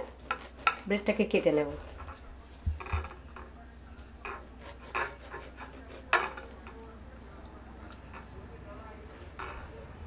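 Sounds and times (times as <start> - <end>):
knife sawing through bread: 0.0 - 1.0, 4.5 - 6.2.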